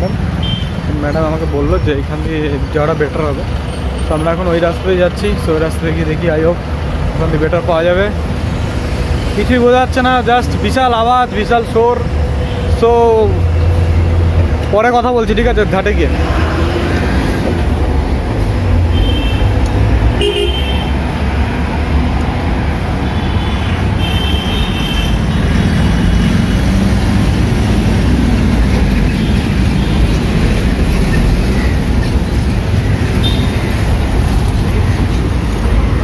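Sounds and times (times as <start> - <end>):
vehicle engines passing: 0.0 - 36.0
car horns honking: 18.9 - 21.1, 23.0 - 26.4, 33.2 - 33.8.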